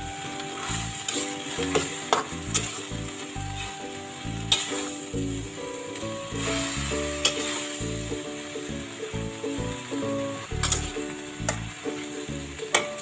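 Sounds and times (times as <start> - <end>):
background music: 0.0 - 13.0
noodles sizzling in a wok: 0.0 - 13.0
metal spatula knocking a wok: 1.0 - 2.8.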